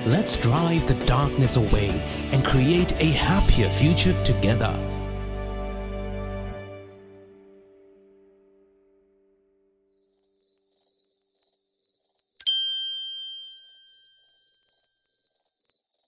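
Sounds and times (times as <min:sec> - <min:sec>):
background music: 0:00.0 - 0:09.3
insects chirring: 0:09.9 - 0:12.5, 0:13.3 - 0:16.0
bell-like ding: 0:12.4 - 0:14.2.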